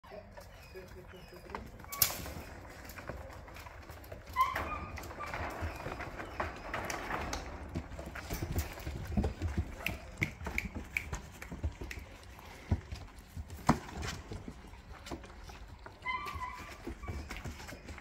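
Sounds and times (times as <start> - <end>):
puppies' paws on wooden boards: 0.0 - 18.0.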